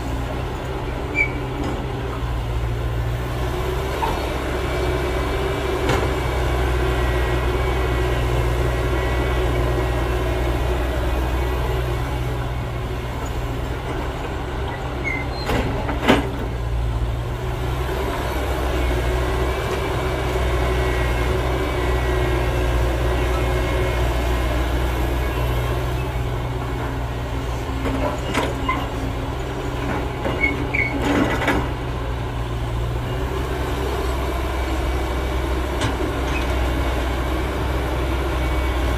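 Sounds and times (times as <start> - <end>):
heavy diesel engines droning: 0.0 - 38.9.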